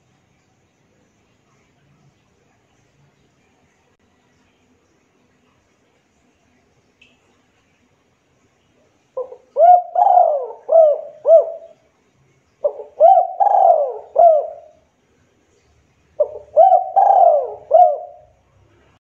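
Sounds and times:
dove cooing: 9.2s - 11.8s, 12.6s - 14.8s, 16.2s - 18.4s.

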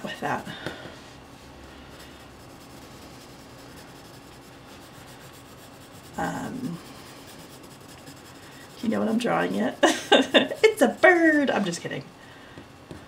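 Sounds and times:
pencil scratching on paper: 1.9s - 11.8s.

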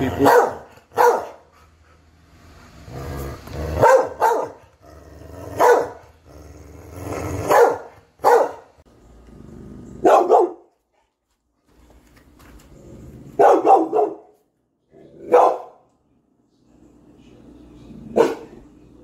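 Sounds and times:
large dog barking deeply: 0.0s - 1.5s, 2.9s - 8.8s, 10.0s - 10.7s, 13.2s - 14.4s, 15.1s - 15.8s, 18.1s - 18.6s
dog grumbling low: 2.8s - 3.8s, 4.8s - 5.6s, 6.2s - 7.5s, 9.2s - 10.0s.

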